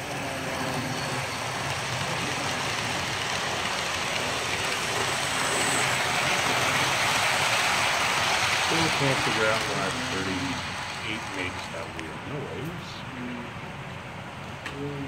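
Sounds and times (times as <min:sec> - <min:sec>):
model train wheels rumbling: 0:00.0 - 0:13.3.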